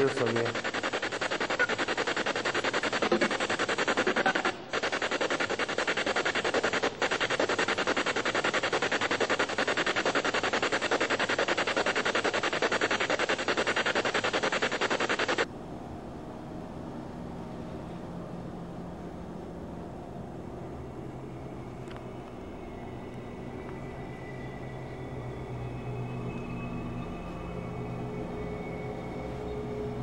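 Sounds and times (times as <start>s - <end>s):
choppy radio static pulses: 0.0s - 15.5s
steady hiss: 0.0s - 15.5s.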